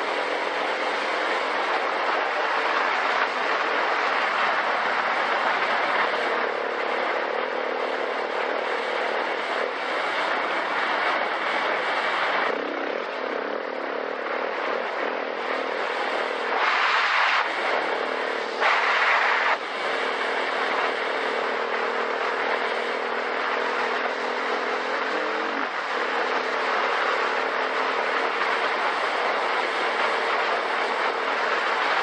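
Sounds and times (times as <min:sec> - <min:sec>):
motorcycle engine running: 0:00.0 - 0:14.3, 0:17.5 - 0:32.0
loud rushing noise: 0:00.0 - 0:32.0.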